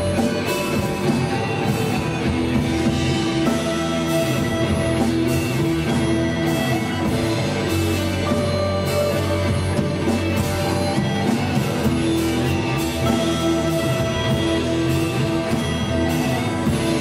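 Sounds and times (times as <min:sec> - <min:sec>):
drum kit: 0:00.0 - 0:17.0
electric guitars sustained notes: 0:00.0 - 0:17.0.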